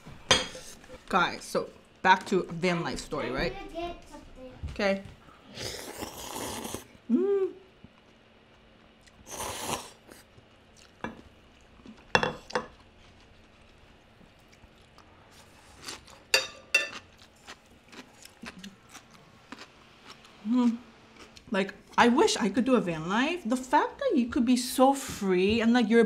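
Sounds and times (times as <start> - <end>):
slurping noodle soup: 5.5 - 6.9, 9.2 - 10.3
person humming: 7.1 - 7.7
chopsticks and dishes clinking: 16.3 - 17.0.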